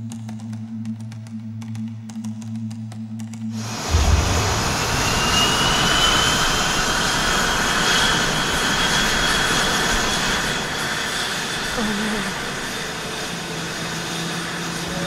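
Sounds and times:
jet engines running up: 0:00.1 - 0:15.0
low thud: 0:03.9 - 0:06.4.

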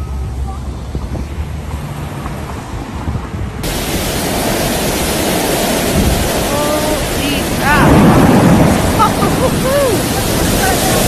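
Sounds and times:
city traffic rumble: 0:00.0 - 0:11.0
torrential rain pouring: 0:03.6 - 0:11.0.

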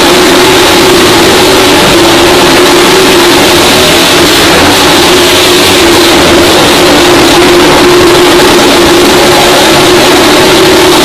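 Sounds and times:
motorcycle engines at high revs: 0:00.0 - 0:11.0.

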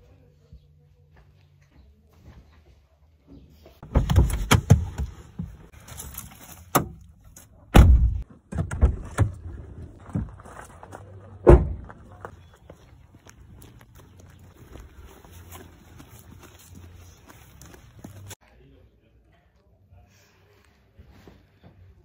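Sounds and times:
car door slamming: 0:07.7 - 0:08.9.

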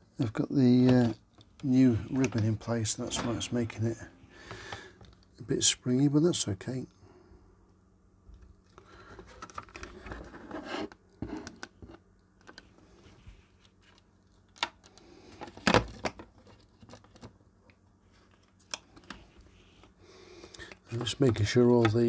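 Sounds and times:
circuit board scraping in plastic case: 0:09.2 - 0:12.0.

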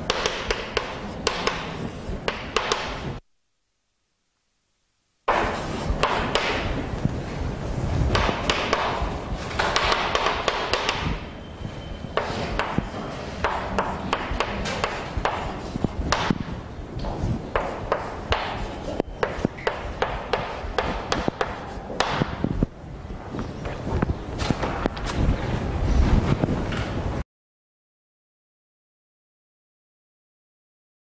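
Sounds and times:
chalk writing on a blackboard: 0:00.1 - 0:03.0, 0:05.3 - 0:06.6, 0:12.2 - 0:16.4, 0:17.2 - 0:22.1.

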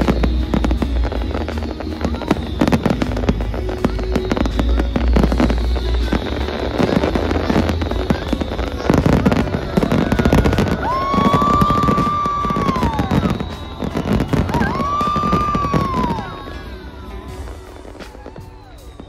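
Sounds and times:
fireworks bangs and crackling: 0:00.0 - 0:19.0
long whistling tone: 0:00.0 - 0:19.0.

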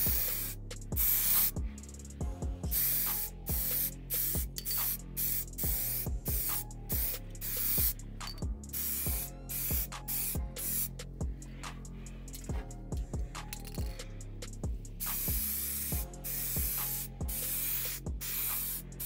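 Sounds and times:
spray paint can hissing: 0:00.0 - 0:02.1, 0:02.7 - 0:11.0, 0:13.5 - 0:14.0, 0:15.0 - 0:19.0
music with steady beat: 0:00.0 - 0:19.0.

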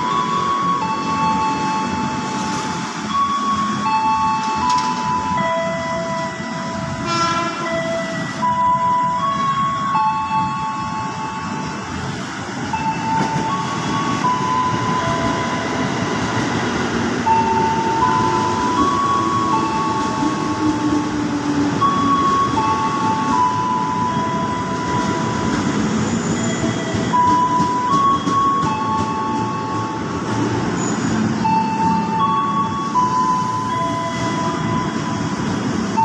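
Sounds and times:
electric train rumbling: 0:00.0 - 0:36.0.

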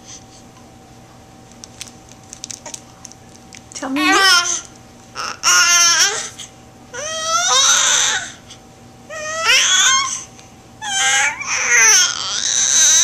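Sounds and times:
baby cooing and squealing: 0:07.0 - 0:08.4, 0:09.1 - 0:13.0.

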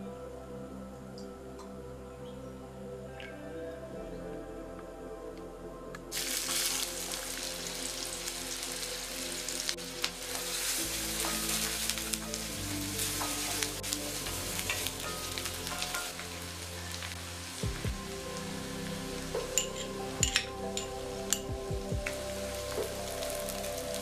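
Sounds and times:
soft background music: 0:00.0 - 0:24.0
onions sizzling in hot oil: 0:06.1 - 0:24.0.

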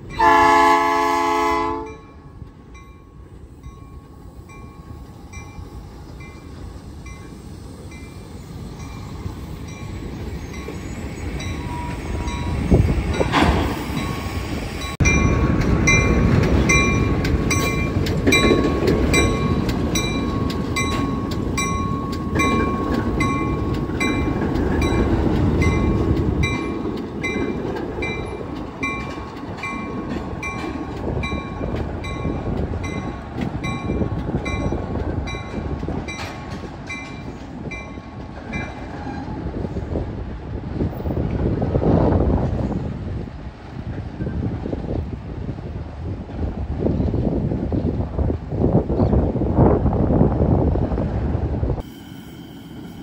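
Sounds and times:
wheels clicking over rail joints: 0:14.8 - 0:39.5
high ringing note: 0:51.8 - 0:53.0.

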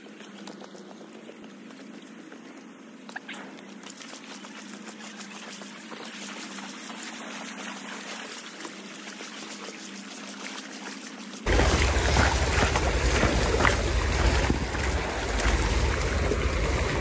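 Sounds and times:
creek water over gravel: 0:00.0 - 0:17.0
wind rumble on microphone: 0:11.5 - 0:17.0.

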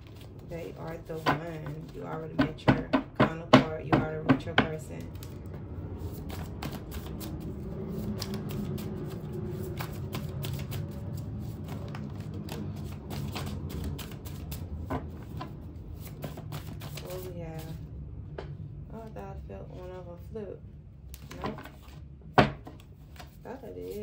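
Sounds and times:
cards being shuffled by hand: 0:00.0 - 0:02.6, 0:04.8 - 0:17.8, 0:21.2 - 0:22.0, 0:22.6 - 0:24.0.

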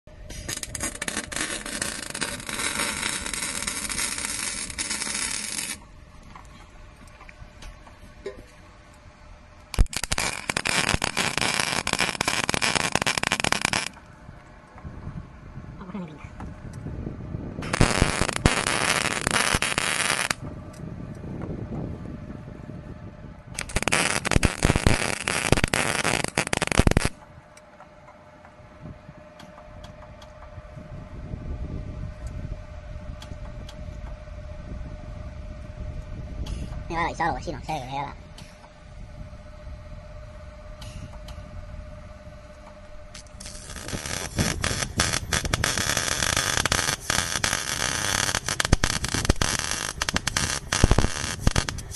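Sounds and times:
welder arc crackling and spitting: 0:00.3 - 0:05.8, 0:09.6 - 0:14.0, 0:17.6 - 0:20.4, 0:23.6 - 0:27.2, 0:43.1 - 0:51.9
gas torch hissing: 0:09.8 - 0:14.0, 0:17.6 - 0:20.4, 0:23.6 - 0:27.1, 0:43.1 - 0:51.9.

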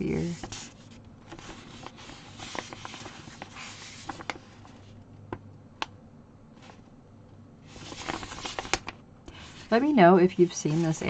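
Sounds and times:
paper rustling: 0:00.2 - 0:05.0, 0:07.7 - 0:11.0.

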